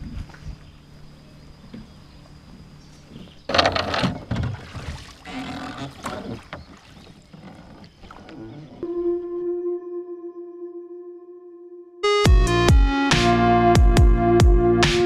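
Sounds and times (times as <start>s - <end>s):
oars splashing through water: 3.1s - 8.8s.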